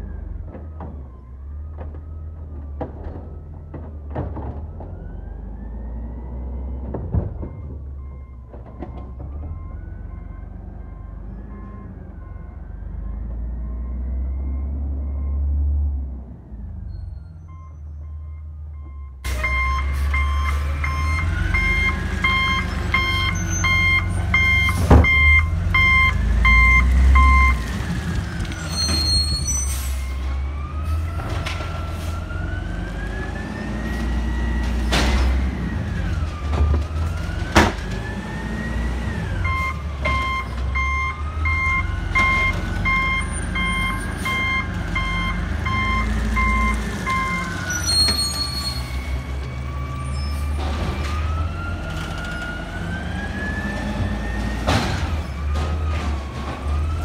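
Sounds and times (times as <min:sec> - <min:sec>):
garbage truck diesel engine revving: 0:29.7 - 0:57.0.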